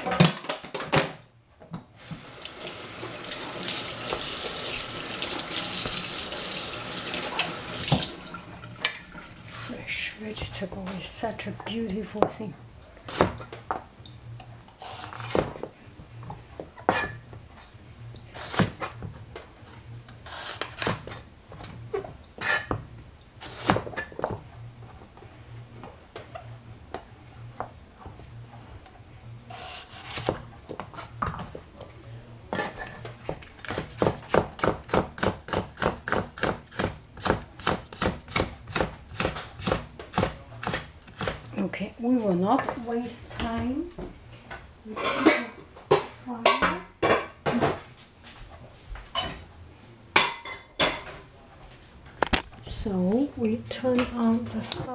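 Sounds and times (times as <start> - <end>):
knife chopping on cutting board: 33.6 - 41.4.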